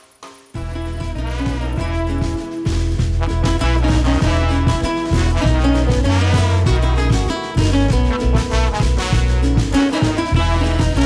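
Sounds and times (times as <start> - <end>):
jazzy swing music: 0.6 - 11.0.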